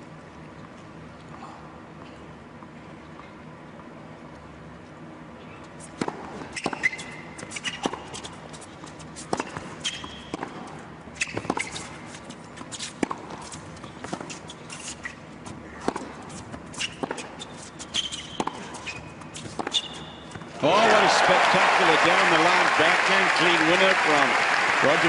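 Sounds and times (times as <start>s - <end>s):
shoes squeaking on court: 5.4s - 20.6s
tennis ball bouncing: 6.0s - 11.9s, 12.6s - 20.5s
racket striking tennis ball: 15.8s - 17.4s, 18.1s - 20.1s.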